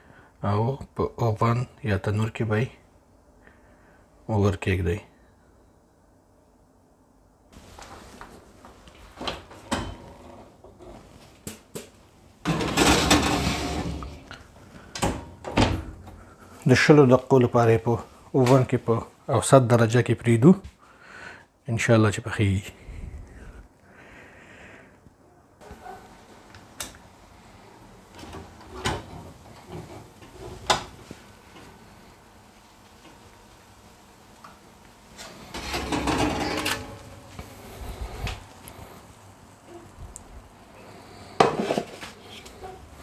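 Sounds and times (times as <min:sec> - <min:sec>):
oven door clunking open: 0:09.3 - 0:10.3, 0:28.2 - 0:31.1, 0:35.2 - 0:37.2
baking pan scraping onto rack: 0:12.4 - 0:14.3, 0:35.2 - 0:37.8, 0:41.4 - 0:43.0.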